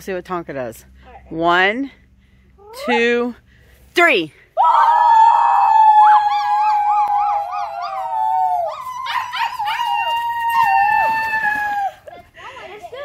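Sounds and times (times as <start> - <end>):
people howling like wolves: 4.6 - 12.1.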